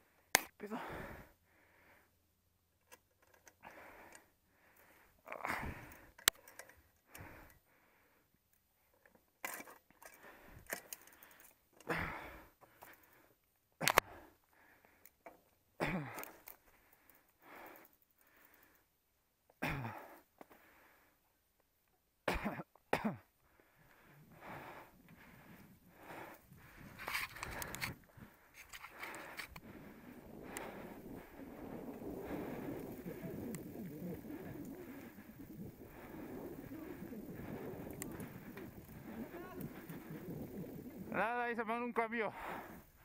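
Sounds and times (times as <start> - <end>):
person breathing hard: 0.8 - 2.2, 3.6 - 8.4, 10.1 - 15.2, 16.0 - 18.9, 19.8 - 21.3, 23.4 - 41.1, 42.3 - 43.0.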